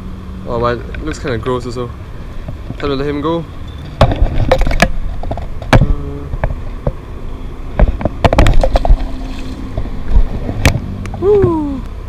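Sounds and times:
wind rumbling on microphone: 2.0 - 12.0
handling noise knocks and clicks: 3.8 - 7.1, 7.7 - 11.2.

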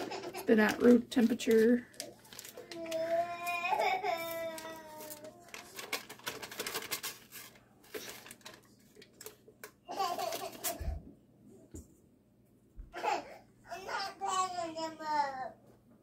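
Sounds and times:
paper wrapper crinkling: 0.0 - 10.8
toddler crying: 2.7 - 5.7, 12.9 - 15.6.

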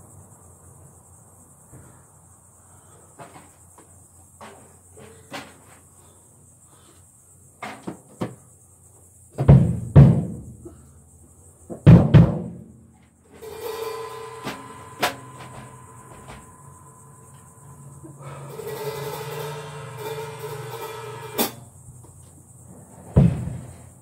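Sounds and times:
ringing tone: 13.4 - 21.4
drum kit playing: 18.2 - 21.6.

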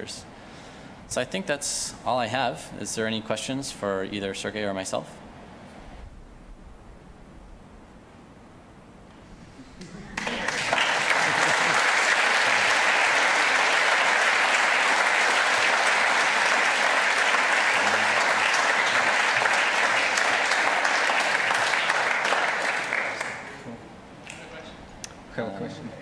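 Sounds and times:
audience clapping: 9.8 - 23.6.

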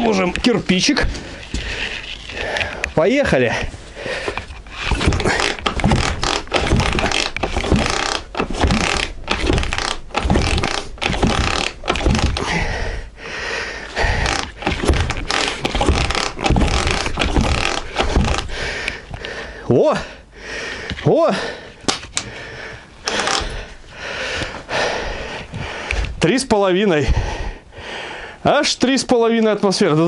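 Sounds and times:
motorcycle engine cranked by hand: 5.0 - 12.5.

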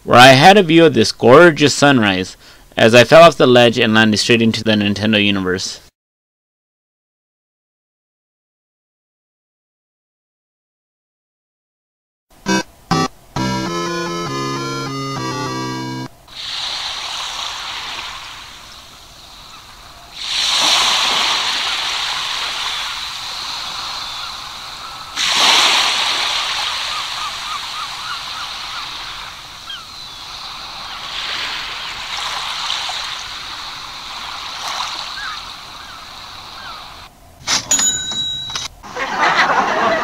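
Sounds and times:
waves breaking: 12.5 - 37.1.

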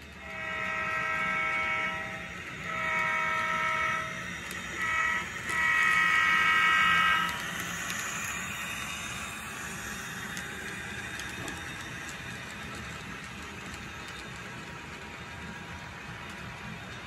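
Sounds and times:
model train horn blasts: 0.2 - 7.4.

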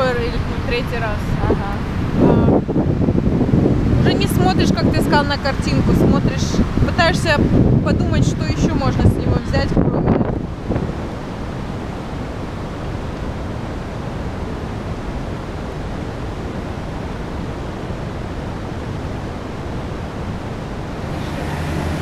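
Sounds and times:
roar of rushing water: 0.0 - 22.0
low steady hum: 20.7 - 22.0.

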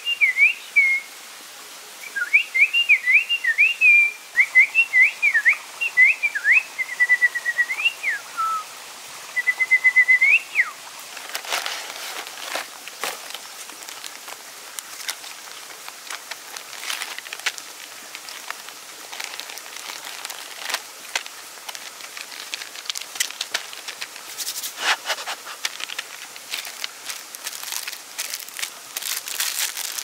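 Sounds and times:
food packets crinkling: 11.1 - 30.0.

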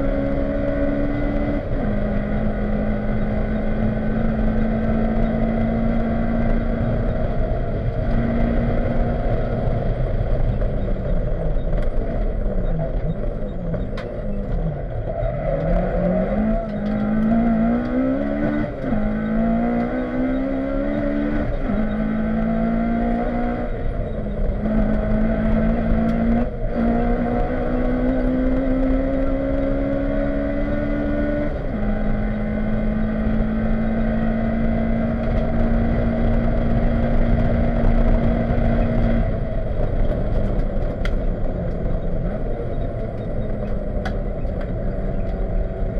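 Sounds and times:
rally car engine: 0.0 - 45.9
road and tyre noise: 0.0 - 45.9.

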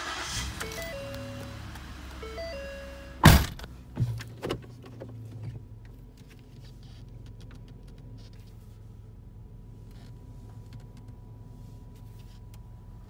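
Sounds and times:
car engine idling: 0.0 - 11.6
loud thump: 3.2 - 3.7.

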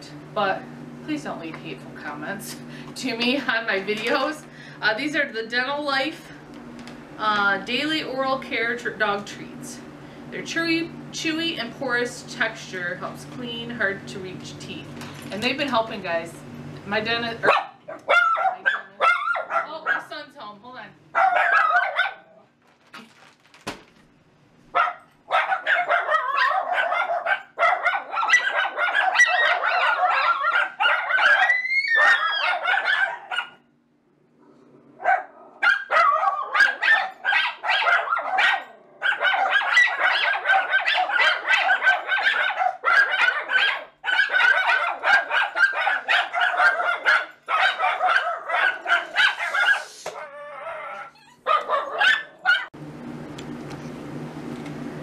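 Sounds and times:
dogs barking: 17.4 - 20.2, 21.1 - 22.4, 24.7 - 33.7, 35.0 - 52.8.

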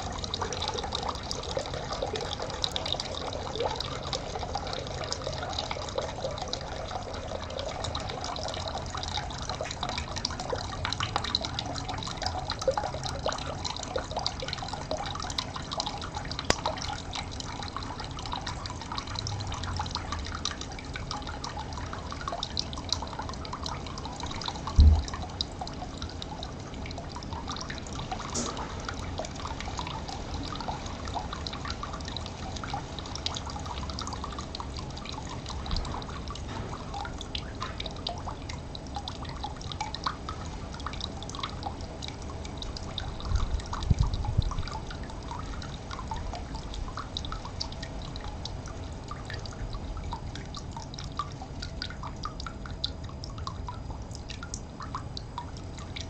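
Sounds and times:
water dripping and trickling: 0.0 - 56.0
low bumps: 24.8 - 25.2
low thump: 24.8 - 25.2.

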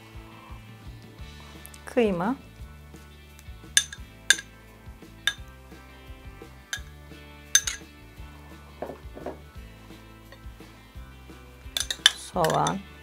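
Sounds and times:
background music: 0.0 - 13.0
spoon clinking on glass: 3.8 - 4.5, 7.6 - 7.9, 11.8 - 12.8
spoon scraping glass bowl: 11.8 - 12.8.

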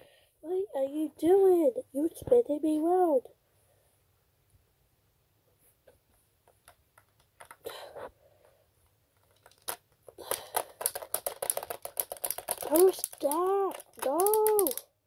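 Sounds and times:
plastic toys clicking: 6.5 - 7.7, 9.2 - 15.0
toy scraping: 10.2 - 14.8.

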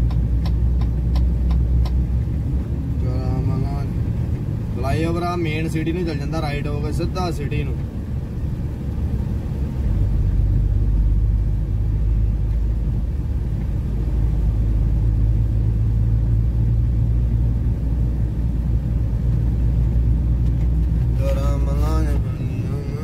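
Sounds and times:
truck engine rumbling: 0.0 - 23.0.

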